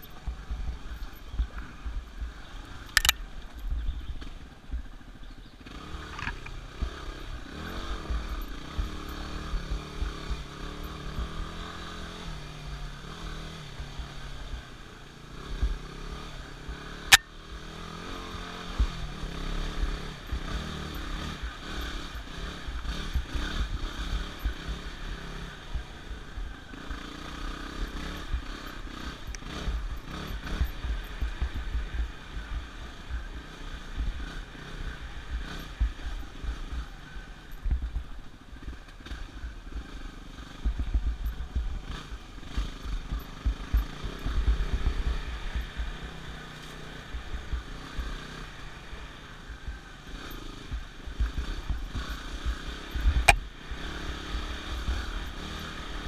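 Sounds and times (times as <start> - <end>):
dirt bike engine revving: 5.6 - 56.0.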